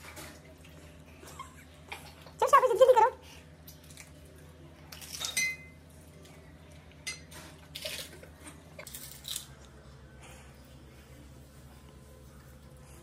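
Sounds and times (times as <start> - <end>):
glass dishes clinking: 5.1 - 5.8.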